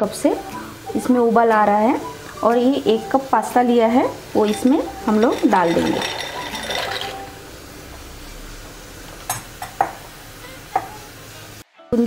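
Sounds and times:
pasta poured into water: 5.3 - 7.3.

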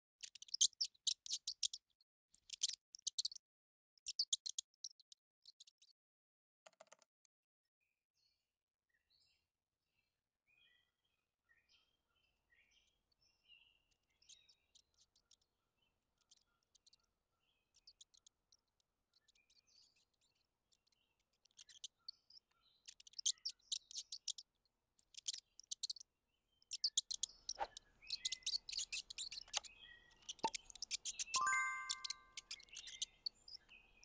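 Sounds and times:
mice nibbling clicks: 19.2 - 26.0, 26.6 - 31.3.

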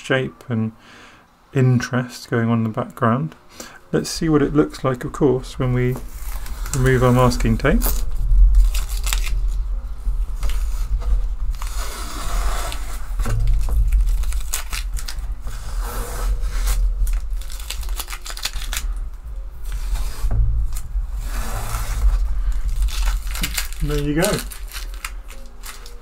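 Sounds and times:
tape being peeled off paper: 6.0 - 9.6, 10.4 - 26.0.

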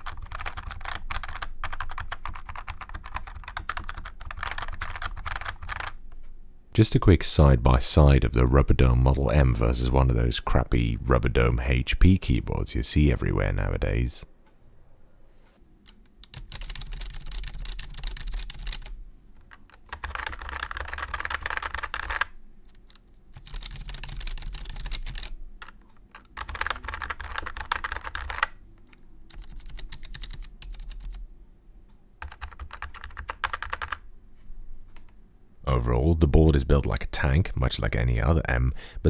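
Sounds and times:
typing on keyboard: 0.0 - 6.0, 15.8 - 31.2, 32.2 - 34.0
loud deep keyboard clatter: 23.4 - 28.5.

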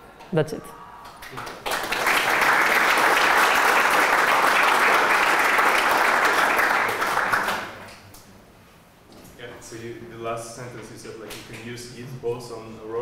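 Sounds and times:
audience applauding: 1.0 - 8.0.

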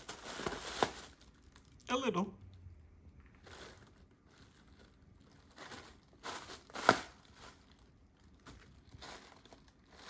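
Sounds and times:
plastic packaging crinkling: 0.0 - 1.8, 3.2 - 10.0
sharp plastic crack: 5.4 - 7.6.

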